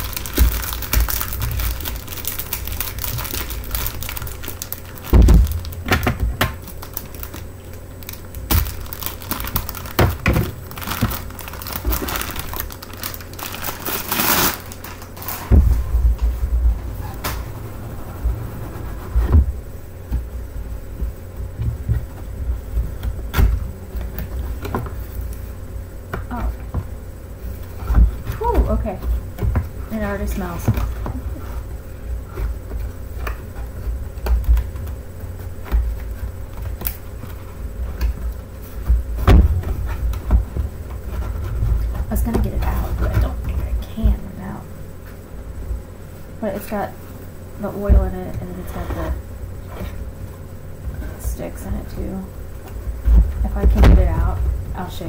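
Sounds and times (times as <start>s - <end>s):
plastic packaging crinkling: 0.0s - 16.2s.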